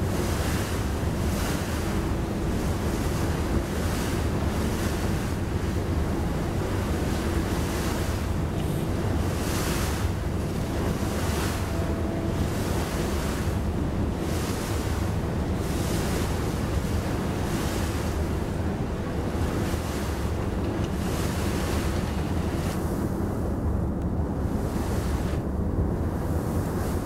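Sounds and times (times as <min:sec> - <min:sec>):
wind buffeting microphone: 0:00.0 - 0:27.0
low rumble: 0:08.2 - 0:15.8.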